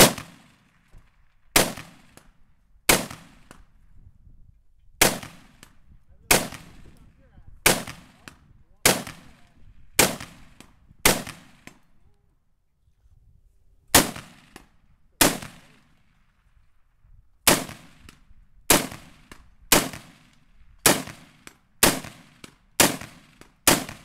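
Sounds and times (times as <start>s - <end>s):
rifle shots: 0.0s - 0.9s, 1.5s - 2.3s, 2.9s - 3.6s, 5.0s - 7.0s, 7.6s - 11.8s, 13.9s - 16.0s, 17.5s - 24.0s.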